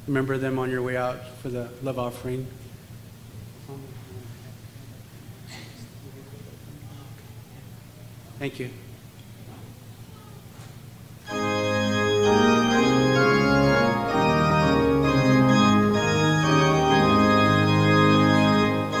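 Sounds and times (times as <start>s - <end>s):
organ playing sustained chords: 11.2s - 19.0s.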